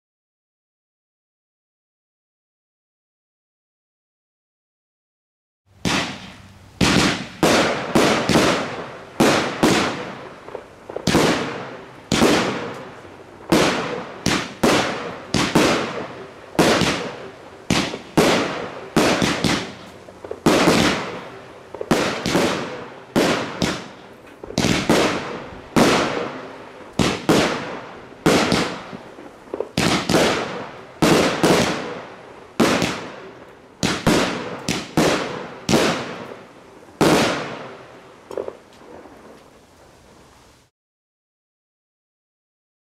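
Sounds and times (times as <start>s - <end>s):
firework bangs: 5.8s - 39.4s.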